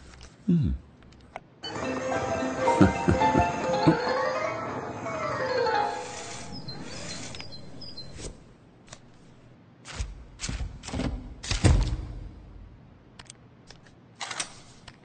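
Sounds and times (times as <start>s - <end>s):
faint music: 1.6s - 8.6s.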